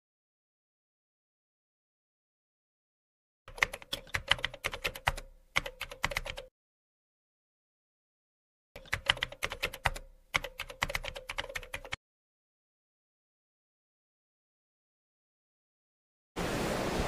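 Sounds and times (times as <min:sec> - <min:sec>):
keyboard keystroke clicks: 0:03.5 - 0:06.5, 0:08.8 - 0:12.0.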